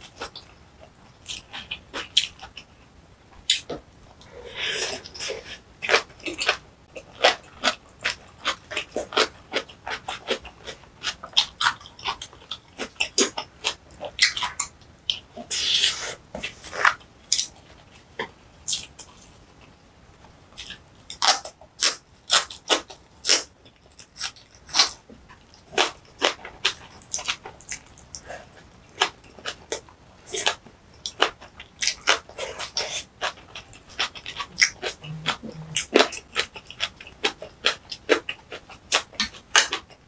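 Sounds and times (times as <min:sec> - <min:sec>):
wet chewing and crunching: 0:00.0 - 0:19.7, 0:20.5 - 0:40.0
brief low hums: 0:34.9 - 0:35.8.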